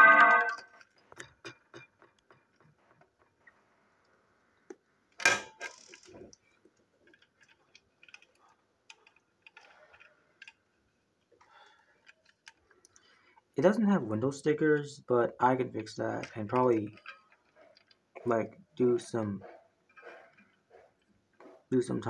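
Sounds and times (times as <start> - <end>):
plastic toy train being handled: 5.2 - 12.8, 15.6 - 18.4.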